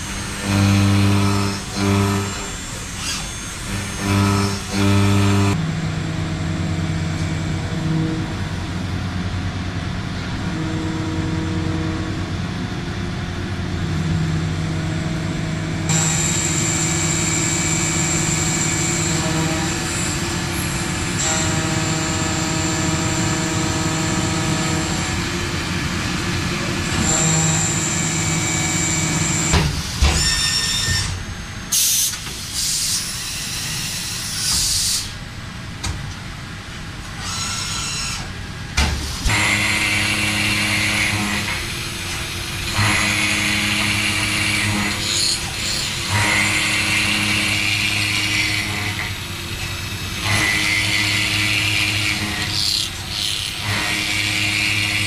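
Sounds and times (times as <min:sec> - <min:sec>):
machine cutting metal whine: 0:00.0 - 0:09.7, 0:13.6 - 0:35.1, 0:37.2 - 0:38.4, 0:39.0 - 0:55.0
disc cutter milling metal: 0:15.9 - 0:31.3, 0:39.2 - 0:55.0.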